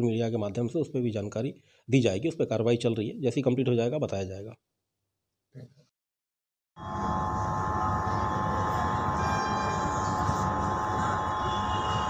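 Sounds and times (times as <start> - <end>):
high whine: 6.8 - 12.0.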